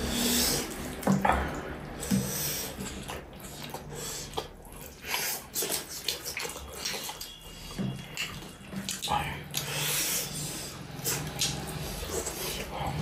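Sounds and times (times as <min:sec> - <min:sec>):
wet chewing: 0:00.0 - 0:13.0
lip-smacking clicks: 0:11.0 - 0:12.4.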